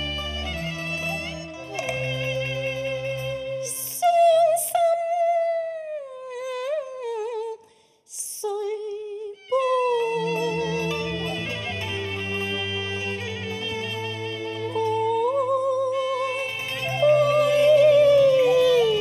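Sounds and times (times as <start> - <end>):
opera orchestra playing: 0.0 - 4.0, 9.8 - 19.0
woman singing with vibrato: 3.6 - 12.2, 14.6 - 19.0.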